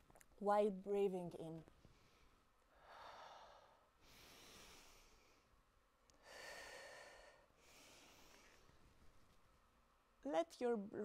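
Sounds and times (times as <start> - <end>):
woman breathing slowly: 1.8 - 8.8.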